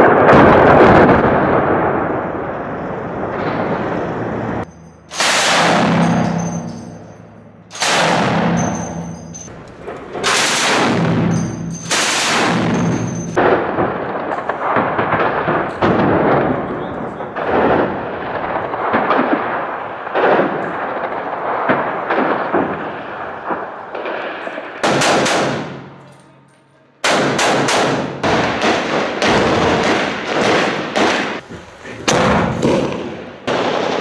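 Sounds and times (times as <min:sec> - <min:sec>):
rifle and machine gun fire: 0:03.3 - 0:26.0, 0:27.0 - 0:34.0.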